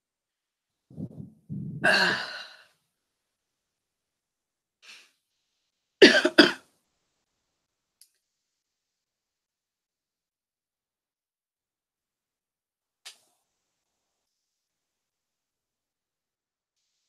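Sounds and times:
person coughing: 0:01.7 - 0:02.6, 0:06.0 - 0:06.6.

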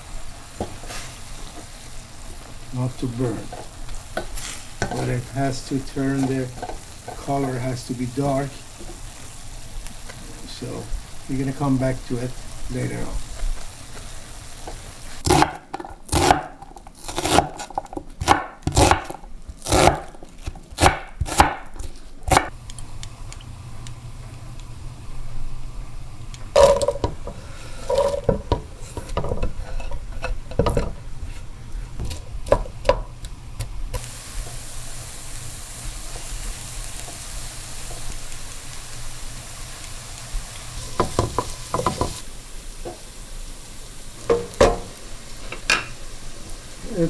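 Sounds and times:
herbs sizzling in oil: 0:00.0 - 0:47.0
knife chopping on wooden board: 0:15.2 - 0:20.1, 0:20.8 - 0:22.5.

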